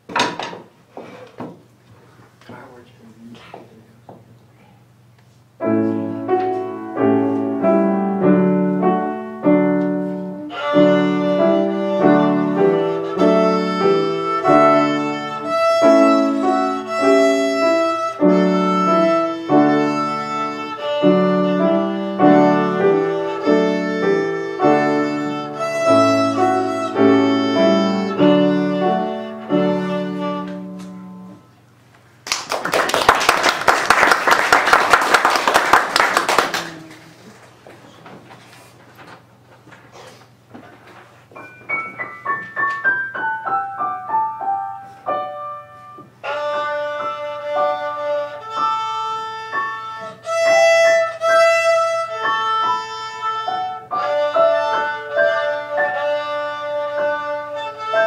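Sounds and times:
piano accompaniment: 5.6s - 31.5s, 41.2s - 58.0s
child playing violin: 8.3s - 31.4s, 46.2s - 58.0s
audience applause: 32.2s - 37.5s.

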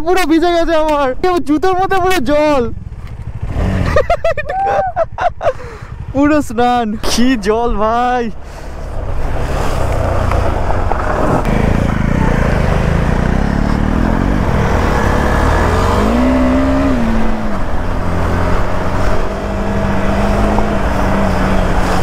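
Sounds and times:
motorcycle engine revving while riding: 2.7s - 4.2s, 9.1s - 22.0s.

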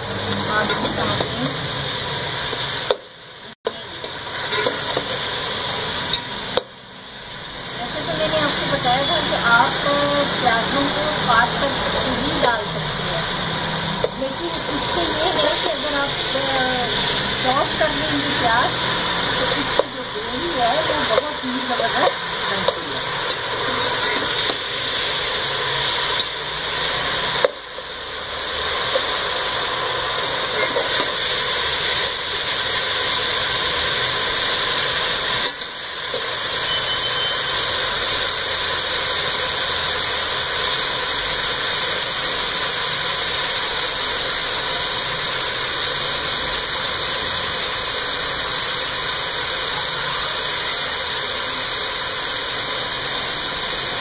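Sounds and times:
onions sizzling in oil: 0.0s - 54.0s.

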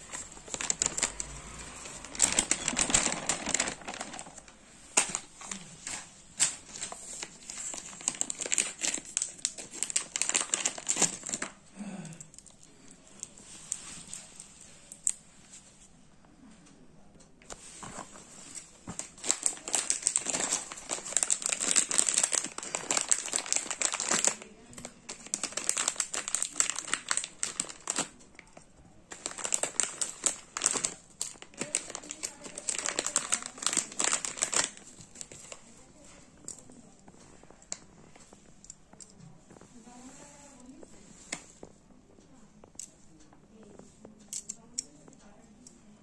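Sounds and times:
plastic bag crinkling: 0.0s - 11.6s, 17.5s - 41.4s.

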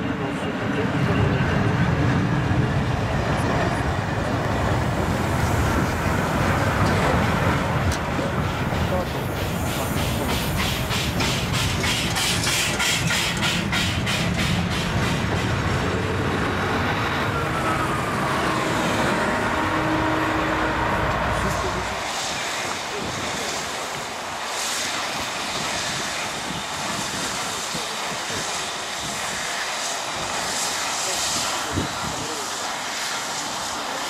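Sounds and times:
diesel locomotive engine hum: 0.0s - 34.0s
train wheels rumbling on rails: 0.0s - 34.0s
steam engine fast regular beat: 8.4s - 15.4s.

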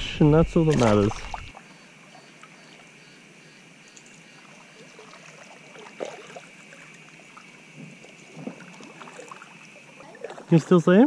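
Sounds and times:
paddle splashing water: 0.0s - 2.9s, 4.4s - 10.8s
loud paddle splash: 0.6s - 1.5s.

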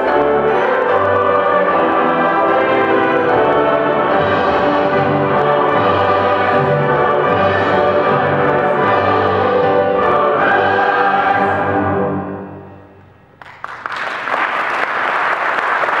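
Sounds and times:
choir with orchestra chord: 0.0s - 13.0s
audience applause: 13.4s - 16.0s.

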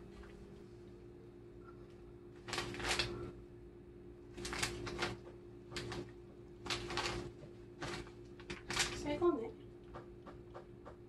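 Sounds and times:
plastic packets crinkling: 2.4s - 3.2s, 4.4s - 5.2s, 5.8s - 9.2s.

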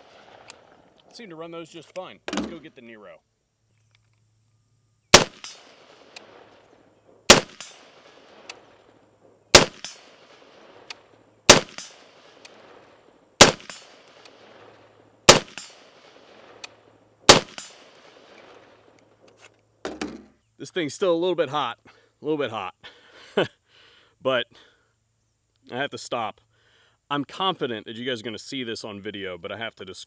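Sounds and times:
rifle shots with echo: 0.0s - 0.8s, 5.1s - 18.9s.

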